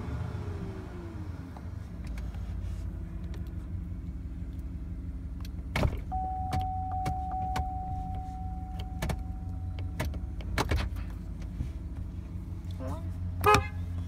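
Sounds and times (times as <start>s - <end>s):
steady high tone: 6.1s - 9.8s.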